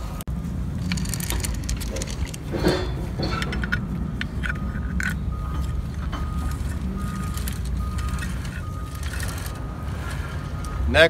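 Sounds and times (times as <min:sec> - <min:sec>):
metal clicks and knocks: 0:00.8 - 0:09.6.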